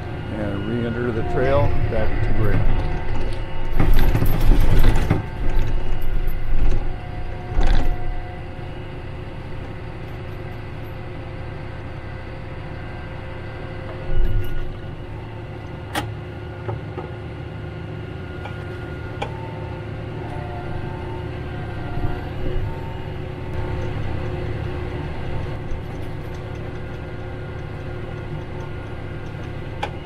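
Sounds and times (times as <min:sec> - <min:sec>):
tractor engine running: 0:00.0 - 0:30.0
knocks and clunks: 0:02.2 - 0:06.9.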